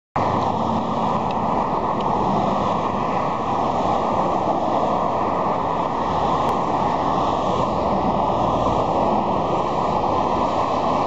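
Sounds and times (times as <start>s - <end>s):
road traffic rushing: 0.2s - 11.0s.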